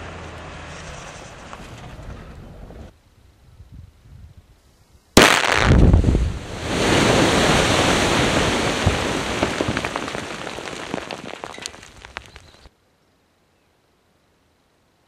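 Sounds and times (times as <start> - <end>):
rush of falling rock debris: 5.2 - 12.7
clicks of stones landing: 8.7 - 12.7.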